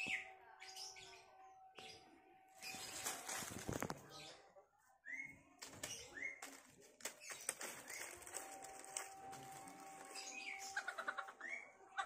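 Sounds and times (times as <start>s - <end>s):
small birds chirping: 0.0s - 12.0s
dry leaves crackling: 2.6s - 4.2s, 5.6s - 11.2s.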